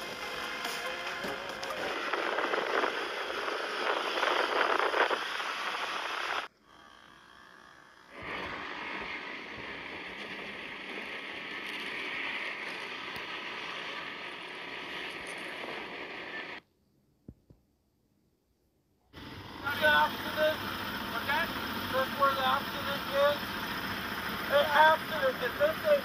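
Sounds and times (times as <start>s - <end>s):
off-road vehicle engine hissing: 0.0s - 16.6s, 19.2s - 26.0s
wind noise: 1.2s - 6.5s.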